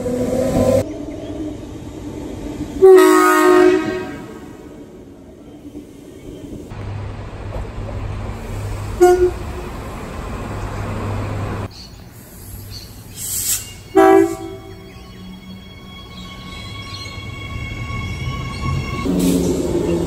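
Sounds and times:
train rumbling by: 0:00.0 - 0:20.0
train horn toots: 0:02.8 - 0:04.8, 0:09.0 - 0:09.6, 0:13.9 - 0:19.9
brief hiss: 0:13.2 - 0:13.8.

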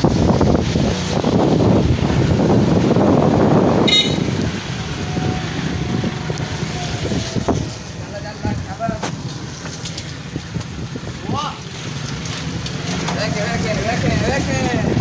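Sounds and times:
motorcycle riding: 0:00.0 - 0:15.0
wind rushing over microphone: 0:00.0 - 0:15.0
short horn beep: 0:03.8 - 0:04.4.

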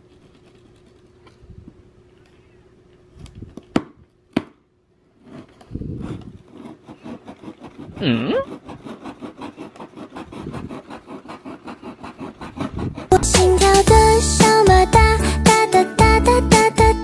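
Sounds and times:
knife sawing through cardboard: 0:05.1 - 0:14.3.

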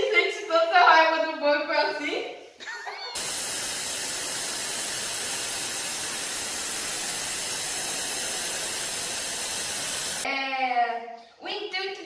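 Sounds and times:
tv static hiss: 0:03.2 - 0:10.2.

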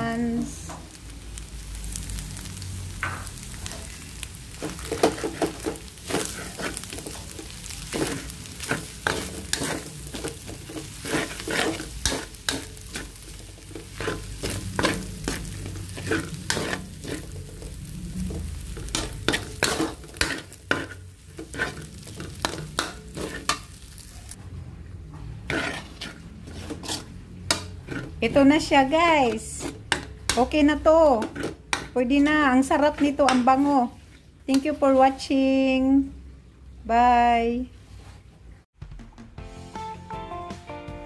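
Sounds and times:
rice sizzling: 0:00.0 - 0:24.4, 0:25.3 - 0:35.8
metal spatula scraping a wok: 0:04.6 - 0:24.4, 0:25.1 - 0:35.3.

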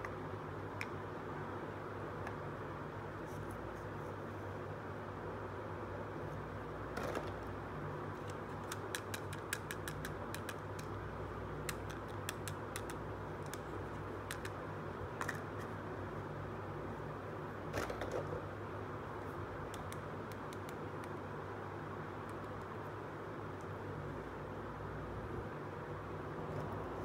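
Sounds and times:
low background hum: 0:00.0 - 0:27.0
plastic toy pieces clicking: 0:08.6 - 0:10.9.

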